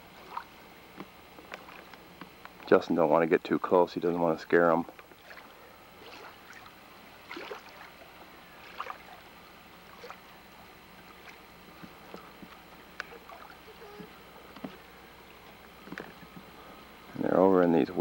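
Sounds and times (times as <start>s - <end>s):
faint outdoor hiss: 0.0s - 18.0s.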